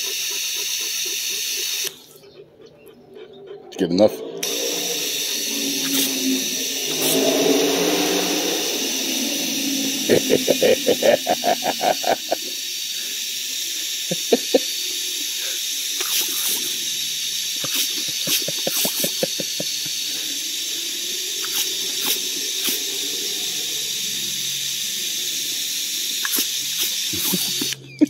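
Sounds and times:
hose nozzle spraying water: 0:00.0 - 0:02.0, 0:04.4 - 0:08.0, 0:10.0 - 0:27.8.

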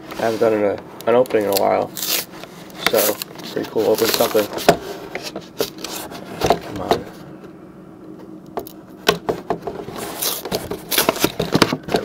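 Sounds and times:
cardboard scraping rustle: 0:00.1 - 0:00.8, 0:01.4 - 0:07.2, 0:09.8 - 0:11.8
taps and knocks on cardboard box: 0:10.5 - 0:12.0.

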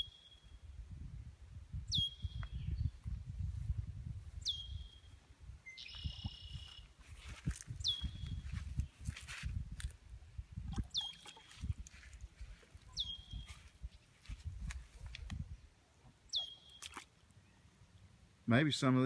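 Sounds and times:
bird whistling: 0:01.9 - 0:02.4, 0:04.4 - 0:05.0, 0:05.7 - 0:06.8, 0:10.9 - 0:11.5, 0:12.9 - 0:13.5, 0:16.3 - 0:16.8.

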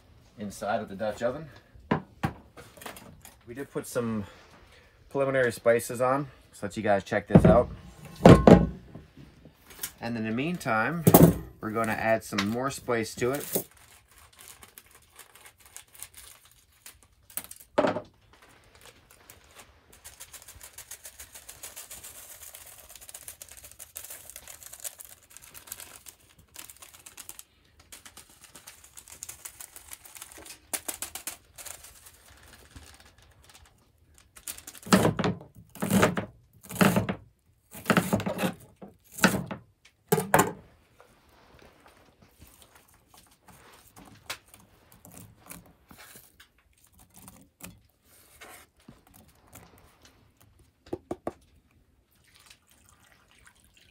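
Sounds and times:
plastic pouch crinkling: 0:12.6 - 0:34.9.

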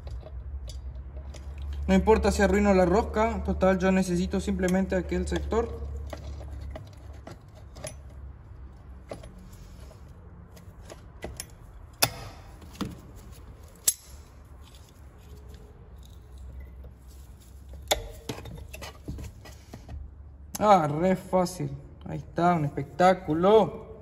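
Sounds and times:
metal pliers clicking: 0:13.7 - 0:14.9.

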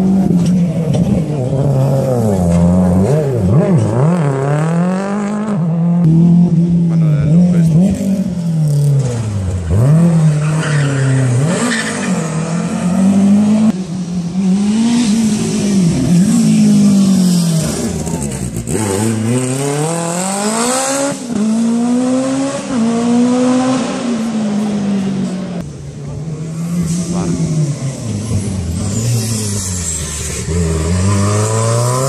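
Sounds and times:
rally car engine revving: 0:00.0 - 0:32.0.

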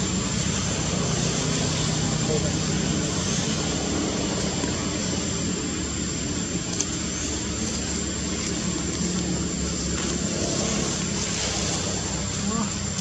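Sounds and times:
engine-like rumble: 0:00.0 - 0:13.0
even hiss: 0:00.0 - 0:13.0.

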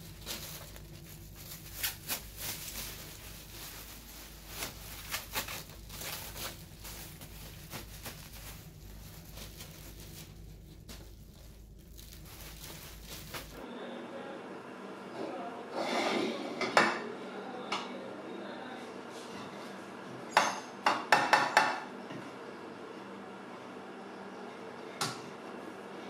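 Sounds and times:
plastic bags crinkling: 0:00.0 - 0:13.6.

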